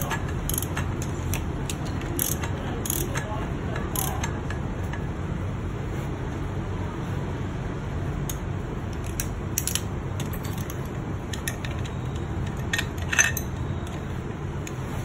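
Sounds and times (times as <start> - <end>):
low background hum: 0.0 - 15.0
metal tools clinking on engine parts: 9.0 - 14.0.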